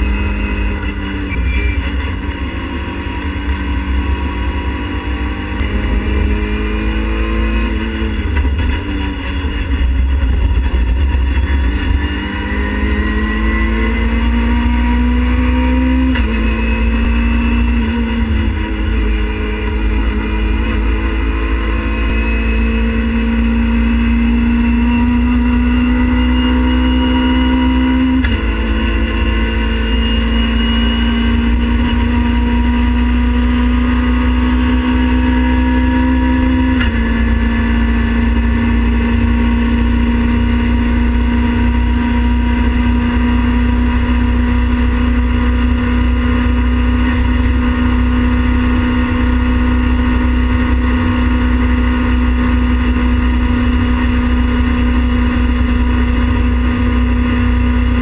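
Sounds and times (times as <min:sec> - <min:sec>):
race car engine at full throttle: 0:00.0 - 0:58.0.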